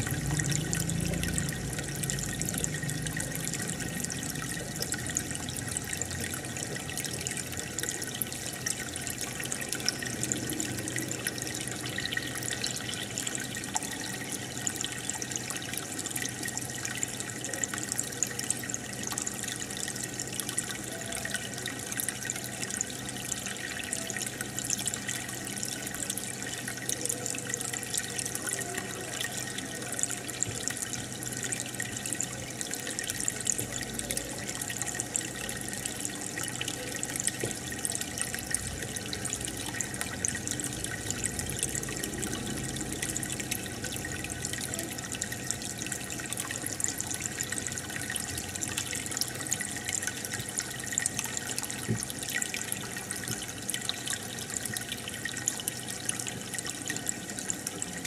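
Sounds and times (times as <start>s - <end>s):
pump humming: 0.0s - 58.0s
water bubbling and trickling: 0.0s - 58.0s.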